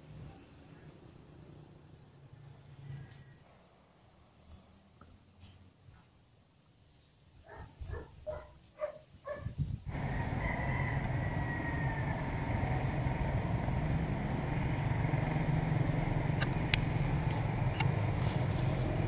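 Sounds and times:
rooster crowing: 9.9s - 12.9s
low rumbling noise: 9.9s - 19.0s.

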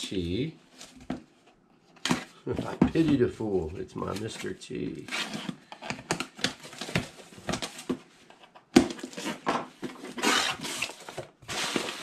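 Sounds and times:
cardboard rustling and scraping: 0.6s - 12.0s
tape being slit: 10.1s - 10.9s.

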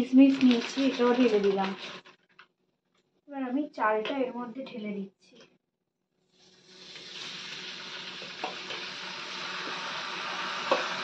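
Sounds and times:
rice sizzling in hot fat: 0.1s - 2.2s, 6.3s - 11.0s.

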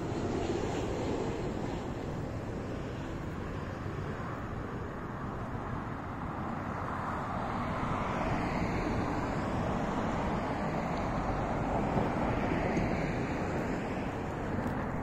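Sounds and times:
wind rumbling on microphone: 0.0s - 15.0s
car passing: 5.2s - 15.0s.

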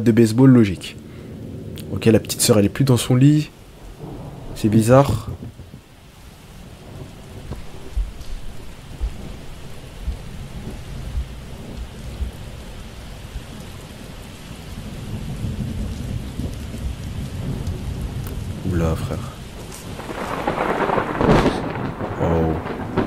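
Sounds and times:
steady rain: 0.0s - 23.0s
thunder rumbling: 0.0s - 23.0s
low thuds: 3.9s - 6.1s, 6.9s - 12.6s.

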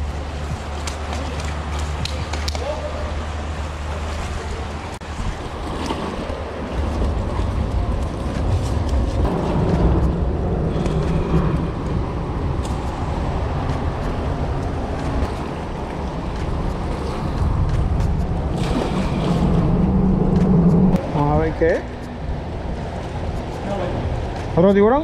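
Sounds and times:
water lapping against concrete: 0.0s - 25.0s
wind buffeting microphone: 4.4s - 25.0s.

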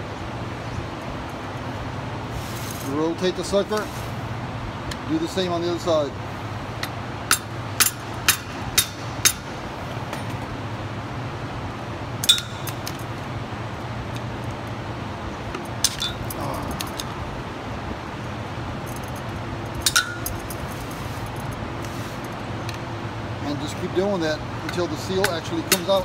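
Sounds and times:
steady low hum: 0.0s - 26.0s
screwdriver clinking on metal: 15.8s - 17.1s, 24.6s - 26.0s.

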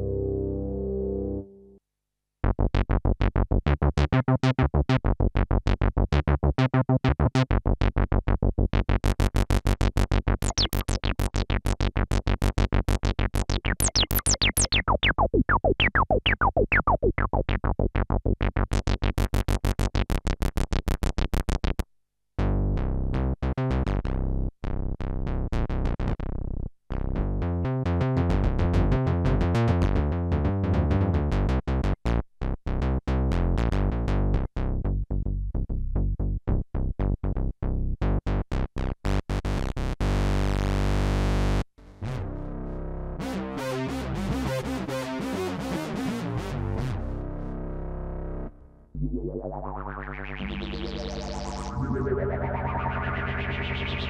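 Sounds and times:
choppy rhythmic synth pattern: 9.0s - 19.8s, 49.0s - 54.0s
synthesizer repeated short notes: 10.4s - 11.4s, 13.4s - 17.7s, 49.0s - 54.0s
sweeping synth tones: 49.0s - 54.0s.

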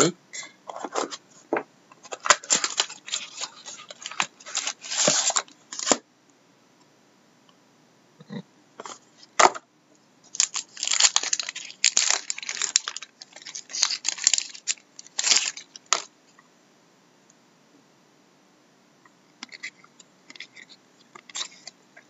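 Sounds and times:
foil wrapper tearing and crinkling: 2.1s - 6.0s, 10.3s - 16.1s.

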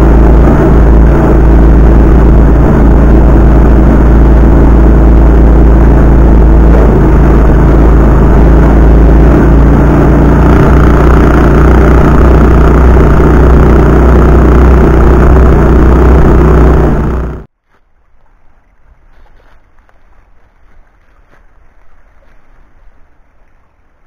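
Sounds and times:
small engine running: 0.0s - 17.5s.

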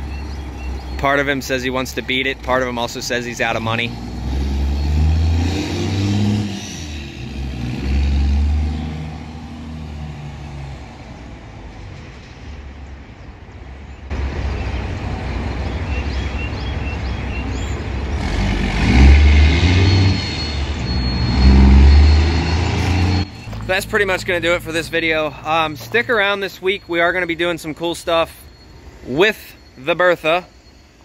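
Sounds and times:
diesel pickup truck driving away: 0.0s - 13.5s, 14.1s - 29.7s.

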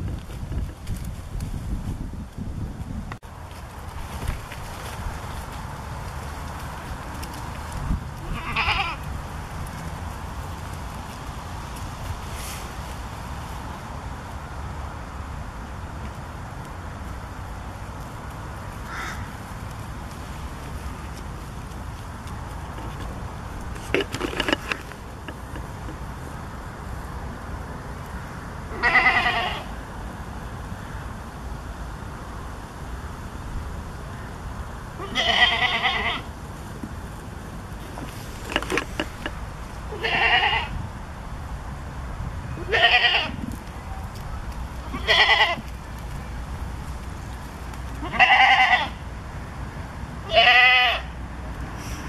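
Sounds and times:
goat bleating: 8.2s - 9.0s, 28.7s - 29.7s, 35.0s - 36.3s, 39.9s - 40.7s, 42.6s - 43.4s, 44.9s - 45.6s, 48.0s - 49.0s, 50.3s - 51.1s.

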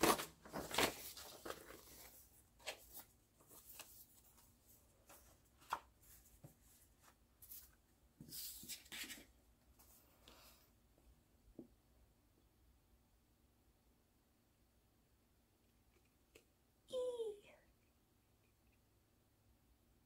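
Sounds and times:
paper rustling: 0.0s - 10.0s.

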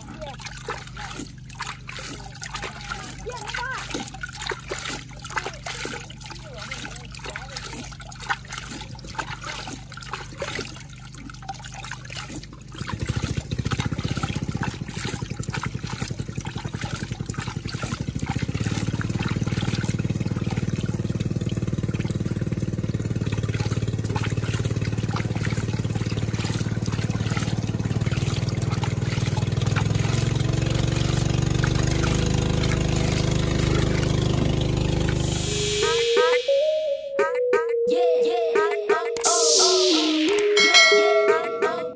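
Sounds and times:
water sloshing in a pan: 0.0s - 35.7s
low steady drone: 32.6s - 36.8s, 39.2s - 41.9s.

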